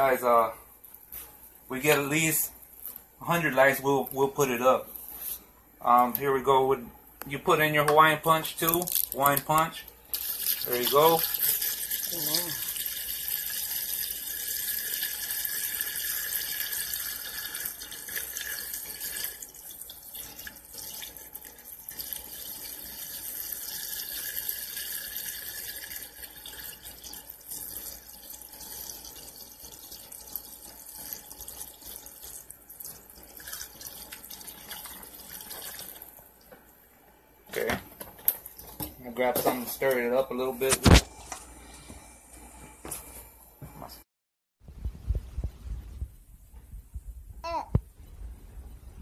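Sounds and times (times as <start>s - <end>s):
liquid pouring and splashing: 8.6s - 36.4s.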